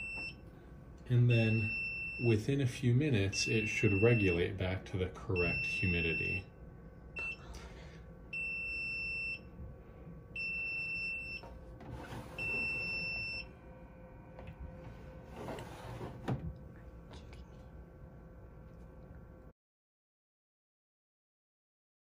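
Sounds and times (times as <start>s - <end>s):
high-pitched alarm beeps: 1.3s - 2.4s, 3.3s - 4.5s, 5.3s - 6.5s, 8.3s - 9.5s, 10.4s - 11.5s, 12.4s - 13.5s.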